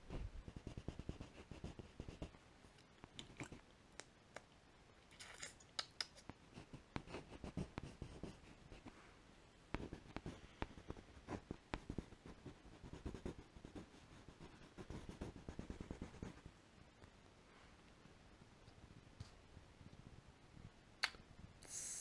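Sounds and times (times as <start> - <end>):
pencil scratching on paper: 0.2 - 2.3, 6.5 - 8.9, 9.8 - 16.5.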